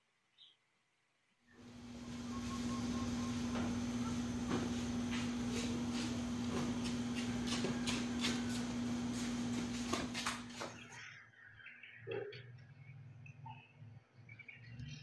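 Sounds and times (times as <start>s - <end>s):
steady hum and hiss: 1.5s - 10.7s
sneakers clicking and rustling: 3.5s - 10.8s.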